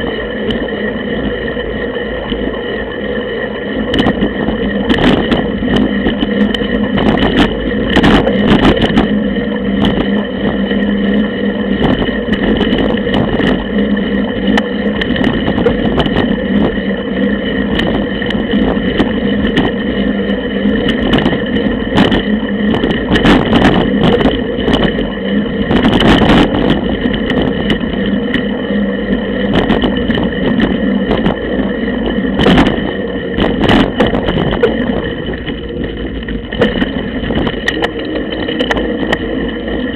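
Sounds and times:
bike tyre rumble and rattle: 0.0 - 39.9.

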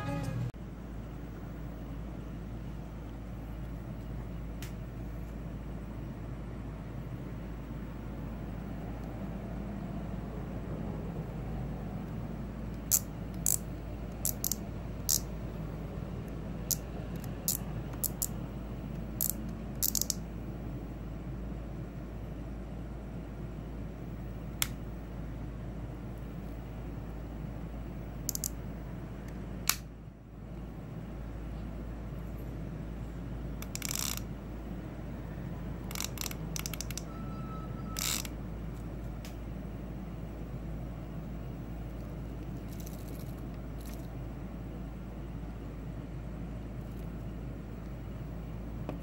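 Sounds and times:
fishing reel clicker ratcheting: 14.2 - 15.3, 19.2 - 20.2, 28.3 - 28.5, 33.6 - 34.2, 35.8 - 37.0, 38.0 - 38.3
fishing reel drag clicking: 33.7 - 34.2.

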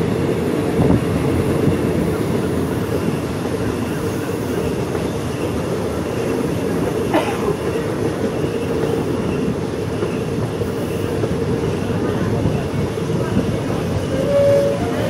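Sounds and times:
train wheels on rail: 0.0 - 15.0.

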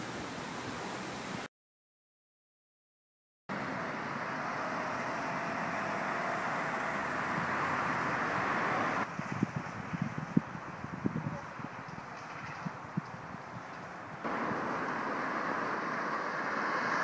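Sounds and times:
passing cars on busy road: 3.5 - 17.0.

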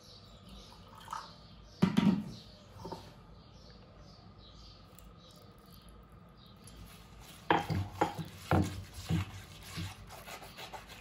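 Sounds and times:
sharp knocks of kitchenware: 1.8 - 2.4.

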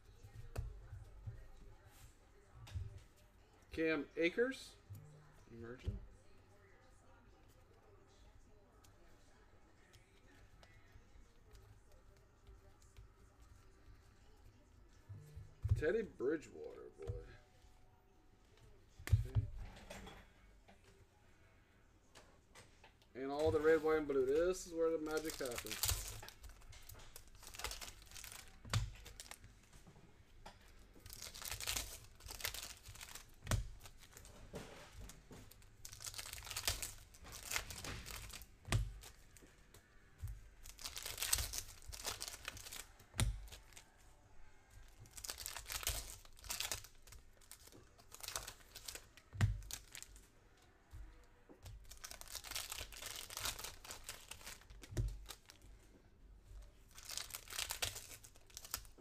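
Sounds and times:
foil wrappers tearing and crinkling: 24.0 - 29.4, 31.0 - 34.3, 35.5 - 39.2, 40.6 - 43.8, 45.0 - 50.1, 51.8 - 55.6, 56.9 - 59.0.

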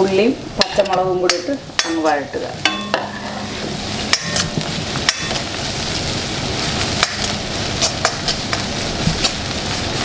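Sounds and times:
vegetables sizzling in oil: 0.0 - 10.0
spatula scraping pan: 1.8 - 9.4.

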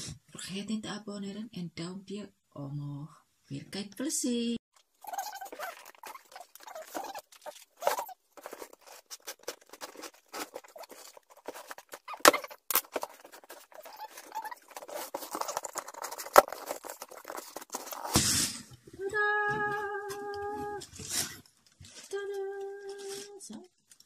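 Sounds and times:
cardboard rustling and scraping: 5.0 - 18.7.

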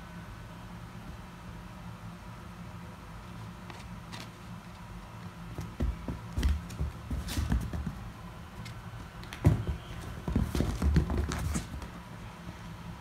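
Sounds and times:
paws thumping on leather sofa: 5.6 - 8.1, 9.2 - 12.0.

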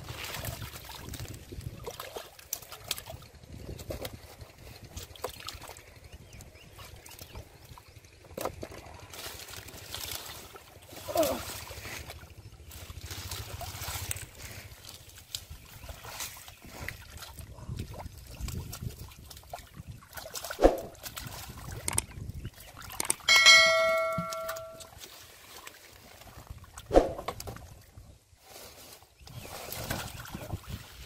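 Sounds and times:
hands squelching through mud: 0.0 - 5.8, 8.6 - 21.9
water splashes: 0.0 - 27.9, 29.4 - 31.0
metallic bell-like ring: 23.3 - 24.9.

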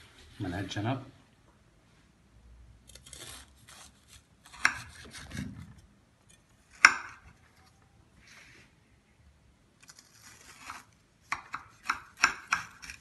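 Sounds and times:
knife crunching through crisp pastry: 2.9 - 5.4, 9.8 - 13.0.

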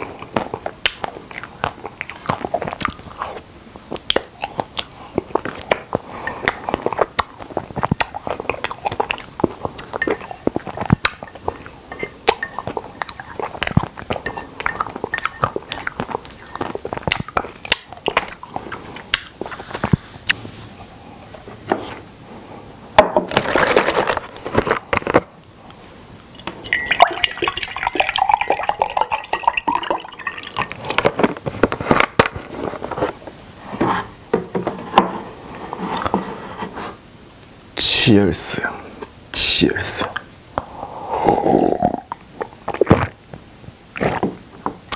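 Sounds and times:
wet mouth eating sounds: 0.0 - 20.4, 40.0 - 44.9
drink pouring into a mug: 26.4 - 31.0.

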